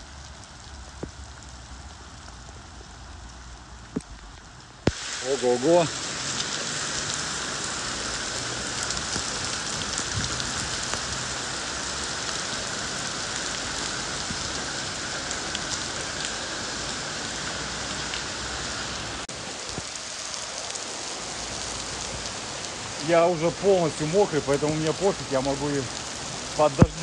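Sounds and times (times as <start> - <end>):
heavy rain hiss: 0.0 - 27.0
sharp raindrop hits: 0.4 - 18.4, 19.2 - 27.0.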